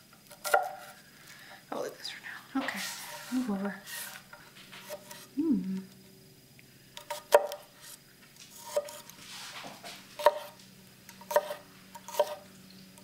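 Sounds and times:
knife scraping: 0:02.6 - 0:05.3, 0:07.0 - 0:12.5.

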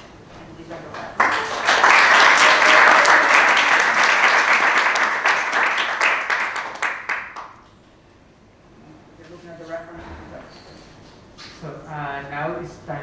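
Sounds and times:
audience applauding: 0:01.0 - 0:07.6.

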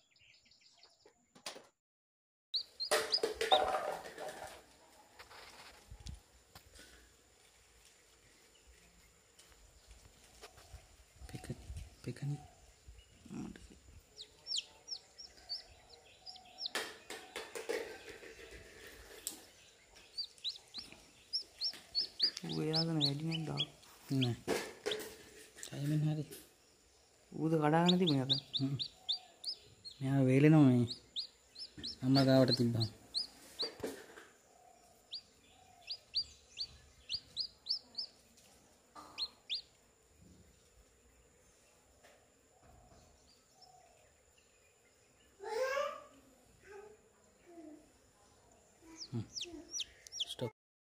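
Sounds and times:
chick peeping: 0:02.6 - 0:04.6, 0:13.3 - 0:25.9, 0:27.4 - 0:34.2, 0:35.1 - 0:39.8, 0:48.8 - 0:50.5
rustling and knocks: 0:02.9 - 0:05.8, 0:24.3 - 0:25.7.

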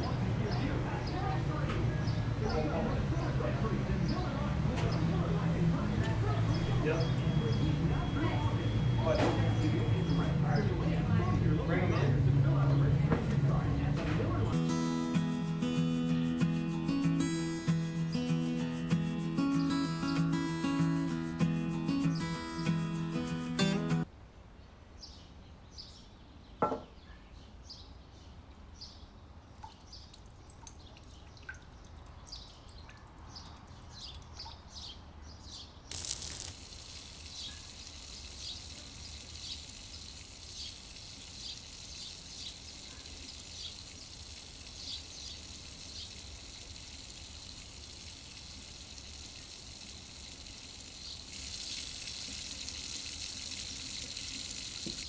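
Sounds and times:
oil crackling in a pan: 0:35.9 - 0:55.0
patties sizzling and popping: 0:35.9 - 0:55.0.

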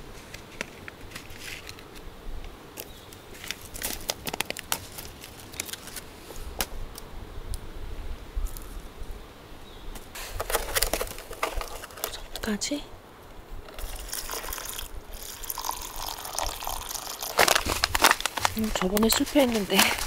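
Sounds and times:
sharp clicks and crackles: 0:02.8 - 0:06.0, 0:17.3 - 0:20.0
plastic packaging crinkling: 0:03.4 - 0:06.1, 0:10.3 - 0:12.3, 0:13.7 - 0:20.0.

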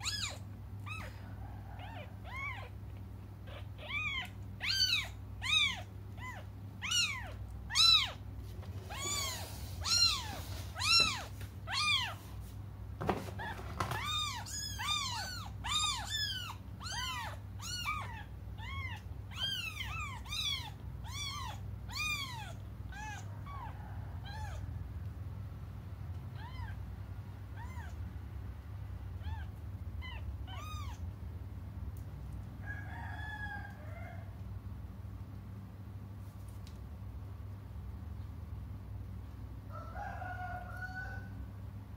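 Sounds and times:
kittens mewing: 0:00.0 - 0:12.2, 0:13.3 - 0:24.7, 0:26.3 - 0:28.1, 0:29.1 - 0:31.2.

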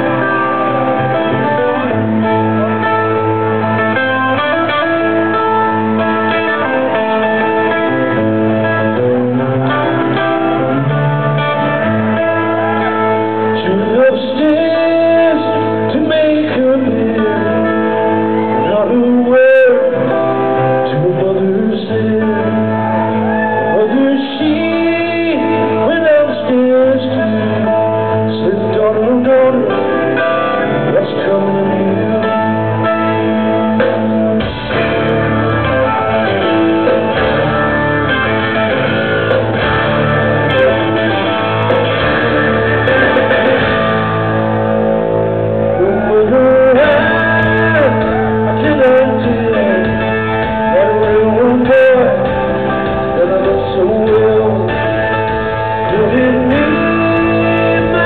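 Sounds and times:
bass and drums: 0:00.0 - 0:58.0
electric guitar: 0:00.0 - 0:58.0
live rock band: 0:00.0 - 0:58.0
man singing lead vocal: 0:12.5 - 0:34.1, 0:45.6 - 0:58.0.

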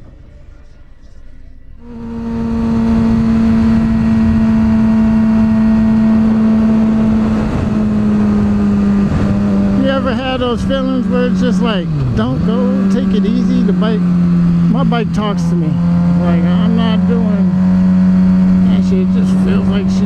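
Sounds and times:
motorcycle engine cruising: 0:01.8 - 0:20.0
wind rushing over microphone: 0:02.1 - 0:12.9.

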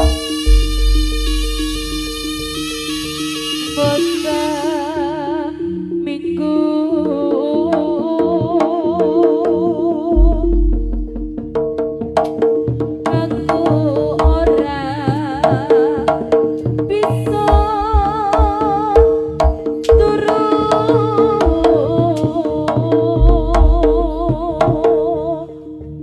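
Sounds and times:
hand drums playing busy rhythm: 0:00.0 - 0:01.9, 0:10.2 - 0:25.0
deep low drum strokes: 0:00.0 - 0:02.5, 0:10.2 - 0:12.2, 0:13.6 - 0:14.8, 0:17.3 - 0:20.3, 0:21.3 - 0:22.0, 0:23.1 - 0:24.8
gamelan ensemble: 0:00.0 - 0:06.3.

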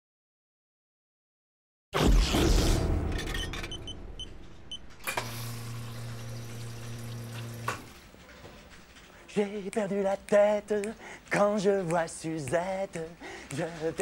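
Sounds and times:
short beeps: 0:03.2 - 0:05.0
vending machine motor humming: 0:05.0 - 0:08.0.

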